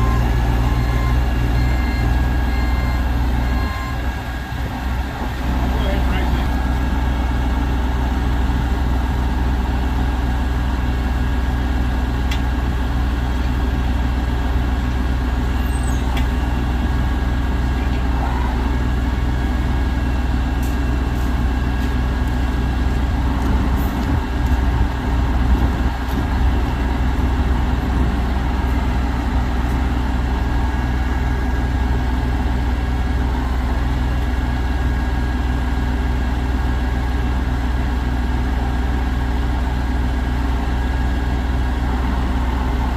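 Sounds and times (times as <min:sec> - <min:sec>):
diesel truck engine idling: 0:00.0 - 0:42.9.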